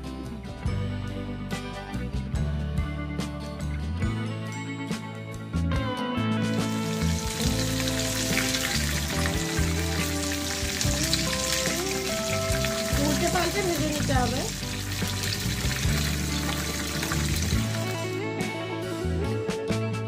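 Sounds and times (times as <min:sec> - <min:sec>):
fritters sizzling in hot oil: 0:06.5 - 0:18.1.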